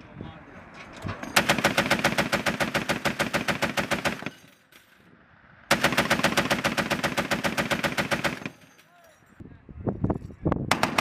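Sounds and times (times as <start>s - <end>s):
machine gun automatic fire: 1.4s - 4.4s, 5.7s - 8.7s, 10.7s - 11.0s.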